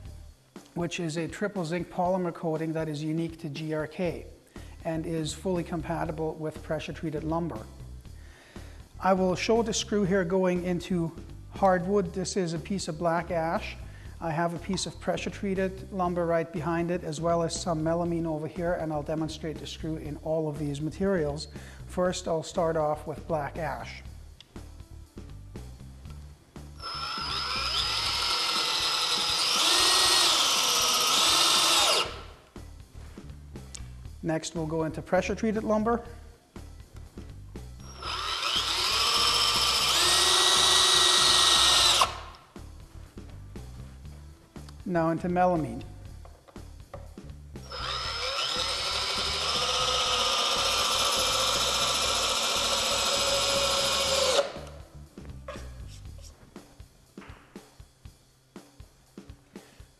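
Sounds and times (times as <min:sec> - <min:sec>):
cordless drill driving screw: 0:26.8 - 0:32.4, 0:37.8 - 0:42.4, 0:47.6 - 0:54.8.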